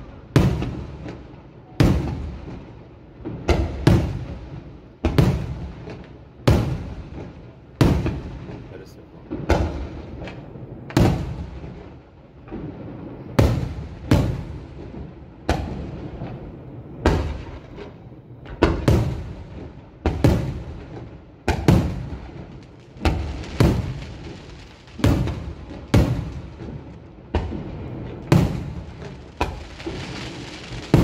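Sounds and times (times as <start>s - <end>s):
firework shells bursting: 20.0s - 31.0s.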